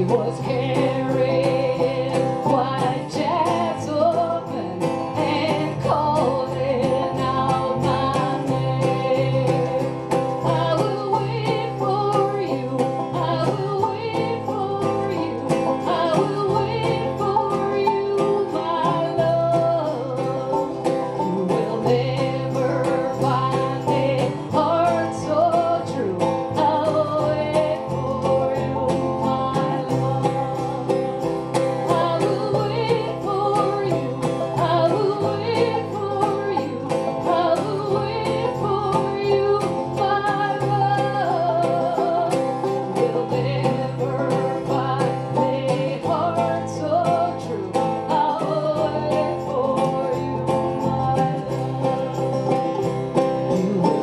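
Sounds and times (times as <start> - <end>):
acoustic guitar: 0.0 - 54.0
banjo: 0.0 - 54.0
upright bass: 0.0 - 54.0.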